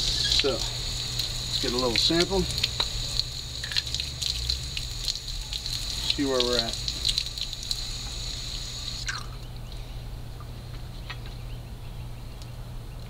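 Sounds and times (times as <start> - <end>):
hose water splashing into bucket: 0.0 - 9.2.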